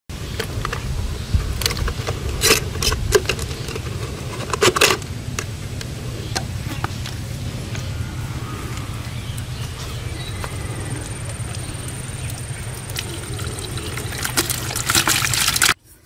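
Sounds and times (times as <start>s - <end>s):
low rumble: 0.2s - 15.7s
plastic bottle crackling: 11.3s - 15.8s.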